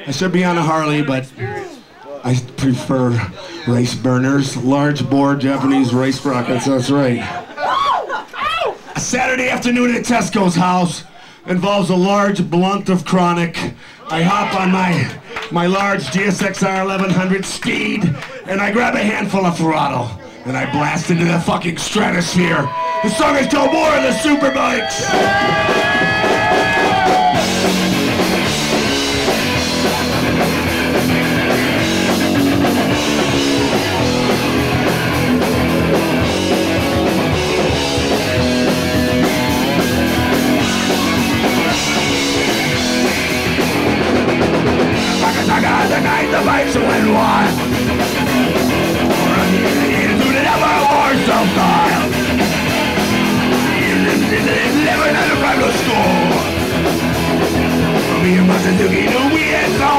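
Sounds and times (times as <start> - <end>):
punk rock band playing live: 20.7 - 59.9.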